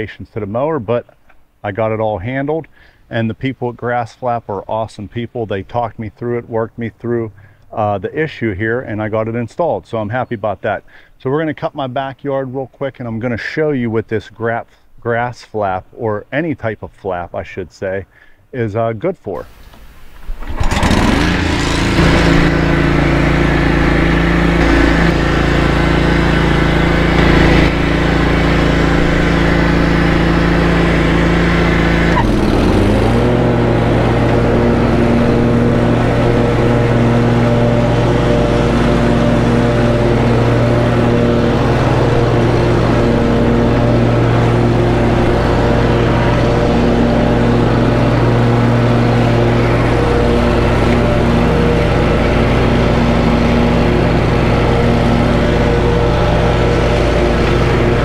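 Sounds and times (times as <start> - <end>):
lawn mower engine running: 19.4 - 58.0.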